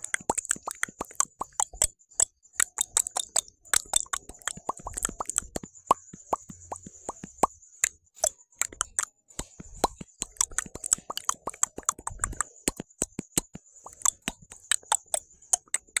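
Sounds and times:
mouth clicks and tongue pops: 0.0s - 16.0s.

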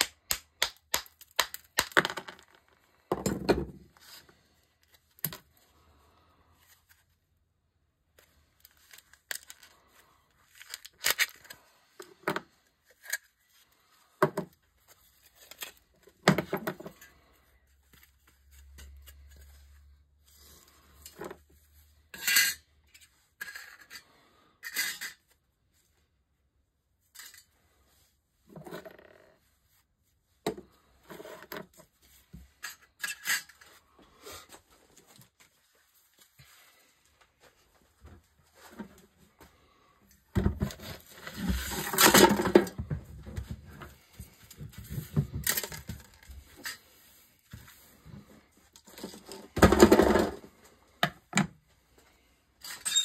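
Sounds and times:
filler cracking and crumbling: 0.0s - 3.0s, 8.4s - 11.7s.

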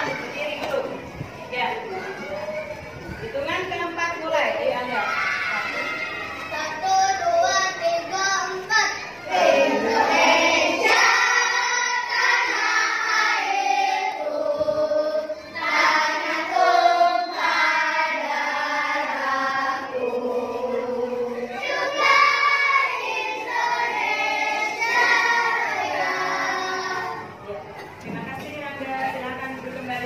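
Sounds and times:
children singing in unison: 5.1s - 27.4s.

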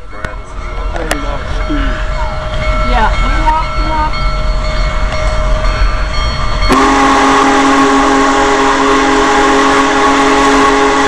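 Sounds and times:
steam locomotive whistle: 6.7s - 11.0s.

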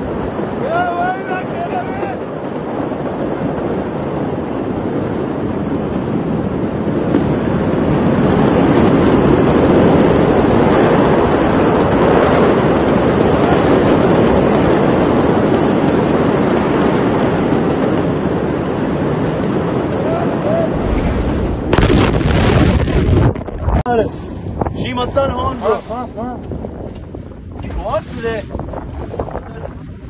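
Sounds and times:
distant fire roar: 0.0s - 30.0s
wind buffeting microphone: 0.0s - 30.0s.

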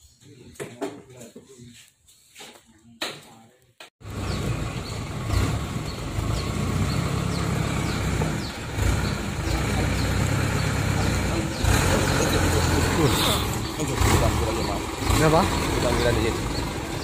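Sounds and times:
diesel truck engine running: 4.0s - 17.0s.

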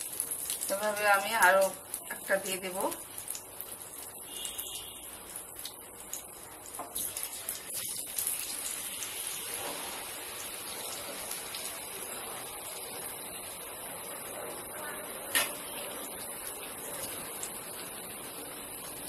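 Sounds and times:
bread deep-frying in oil: 0.0s - 19.0s.

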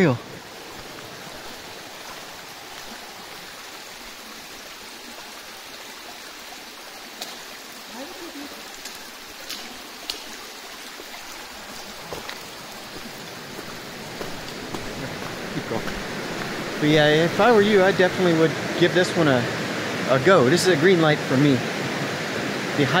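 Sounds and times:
creek rushing: 0.0s - 23.0s
footsteps on gravel: 0.5s - 3.1s, 11.6s - 17.1s.

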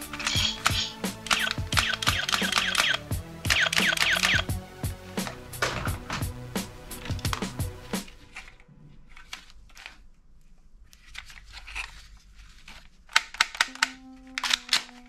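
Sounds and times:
sharp plastic clicks: 0.0s - 4.5s, 12.7s - 15.0s
plastic rustling and knocks: 5.6s - 6.3s.

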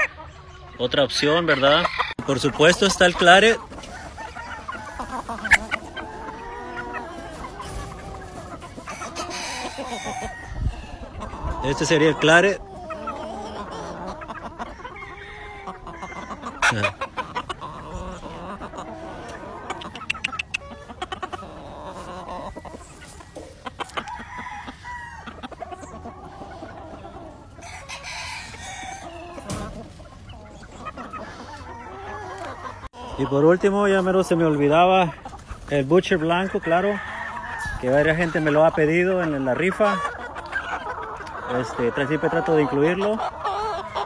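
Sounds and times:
chickens clucking: 0.0s - 44.0s
rooster crowing: 9.1s - 11.0s, 24.0s - 25.4s, 27.6s - 29.2s.

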